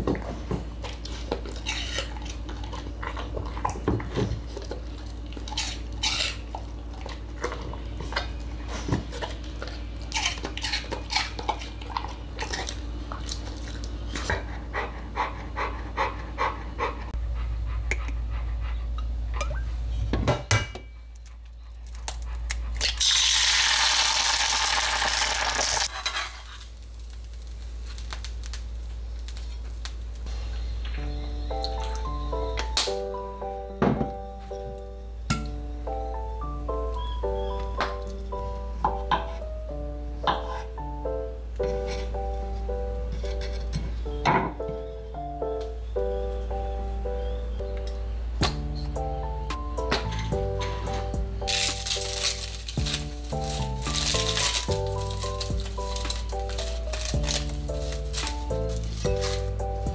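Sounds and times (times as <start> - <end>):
dog crunching food: 0.8 - 8.4, 9.1 - 14.3, 51.4 - 59.9.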